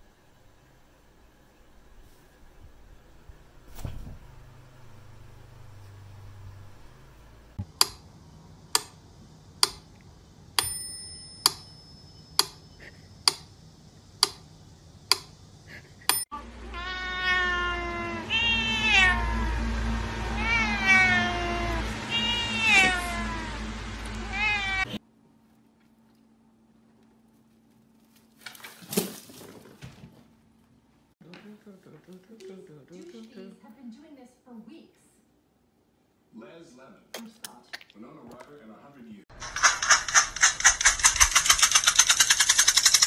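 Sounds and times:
sharp clicks: 7.6s - 8.1s, 8.7s - 9.0s, 9.6s - 10.0s, 13.3s - 13.5s, 14.2s - 14.4s, 15.1s - 15.3s, 39.3s - 43.0s
cat meowing loudly: 16.6s - 25.0s.

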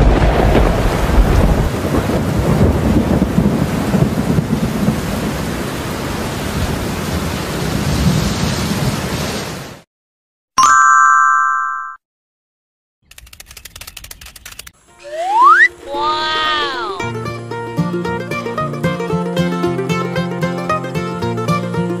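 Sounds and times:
thunder rumble: 0.0s - 9.2s
heavy rain: 0.0s - 9.8s.

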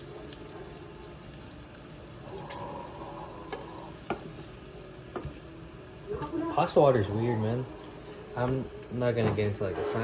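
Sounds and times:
bacon sizzling in a pan: 0.0s - 10.0s.

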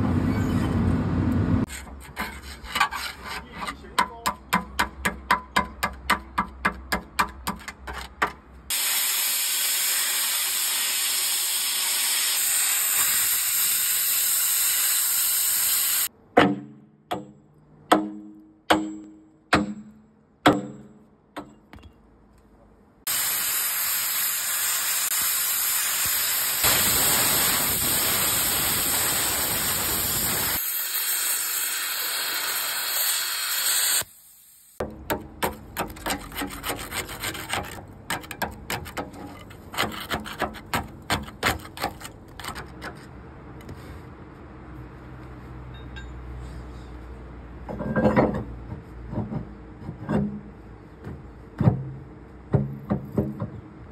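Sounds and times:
hand scraping on steel: 1.7s - 4.2s, 35.6s - 43.8s
cutting torch hissing: 8.7s - 16.1s, 23.1s - 34.8s.

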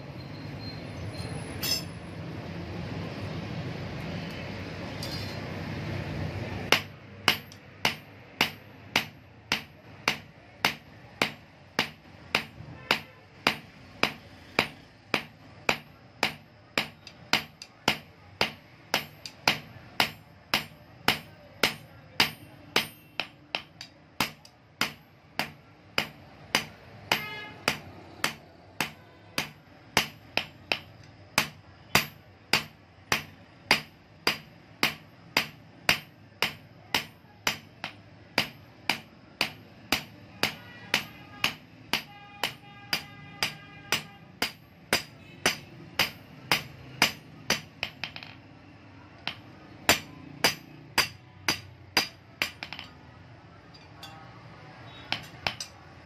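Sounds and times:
hammer striking anvil: 1.6s - 1.9s, 6.7s - 48.4s, 49.2s - 53.0s, 54.9s - 55.8s.

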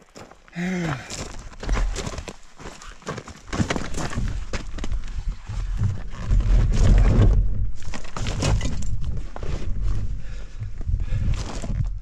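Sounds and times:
knocks and thuds on gravel: 0.9s - 9.2s.

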